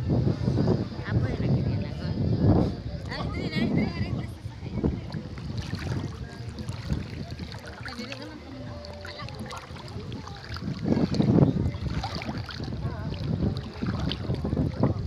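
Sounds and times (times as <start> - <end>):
wind rumbling on microphone: 0.0 - 15.0
seawater sloshing and splashing: 4.7 - 15.0.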